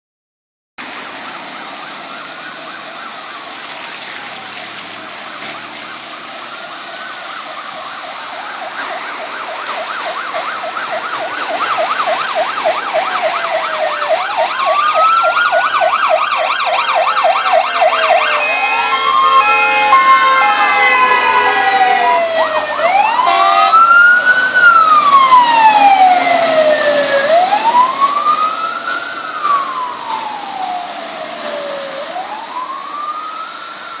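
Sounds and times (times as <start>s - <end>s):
fire engine siren: 0.8s - 34.0s
tyres hissing on wet road: 0.8s - 34.0s.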